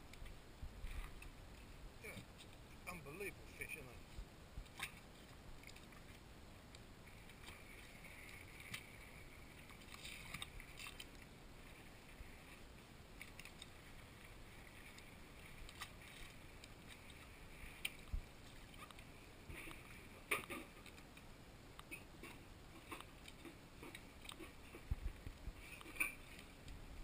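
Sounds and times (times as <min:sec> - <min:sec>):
small water splashes: 0:07.1 - 0:21.1
faint ticks: 0:13.2 - 0:26.8
water lapping against boat: 0:21.8 - 0:27.0.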